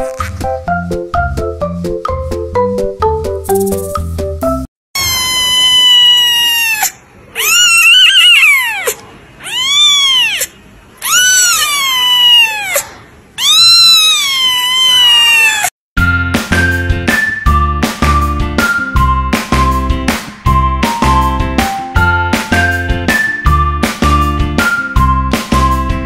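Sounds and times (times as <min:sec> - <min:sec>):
kitten meowing loudly: 0:05.0 - 0:15.7.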